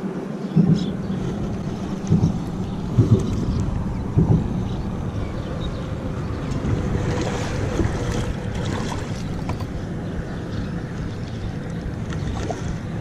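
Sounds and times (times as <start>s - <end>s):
water lapping around kayak: 0.0s - 13.0s
wind noise on microphone: 0.0s - 13.0s.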